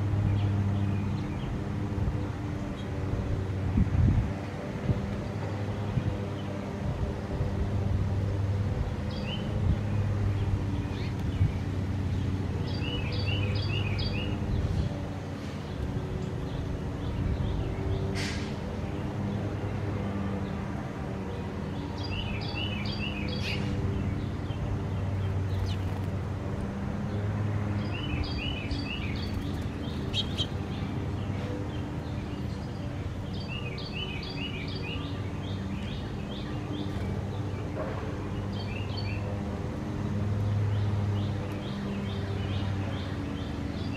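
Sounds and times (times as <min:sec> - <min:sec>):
small songbird chirping: 0:09.1 - 0:18.4, 0:21.3 - 0:26.1, 0:27.1 - 0:39.4.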